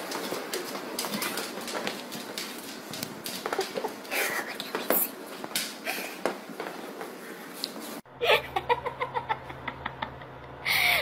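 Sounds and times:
woman laughing: 3.4s - 4.7s, 8.1s - 11.0s.

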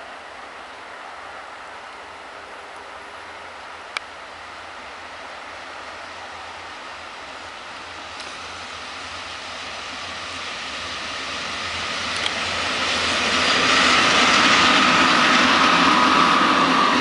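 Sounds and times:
train passing on rails: 0.0s - 17.0s
locomotive whine: 0.7s - 17.0s.

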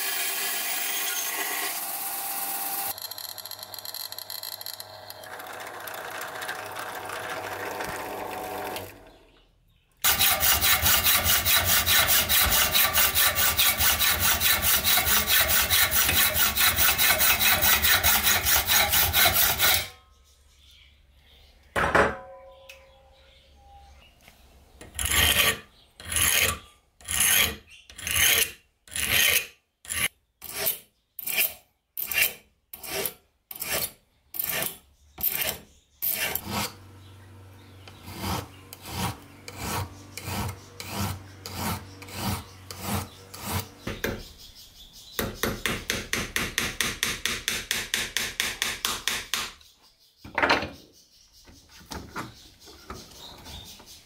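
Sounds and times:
file strokes on steel blade: 10.1s - 20.0s, 38.0s - 43.7s.

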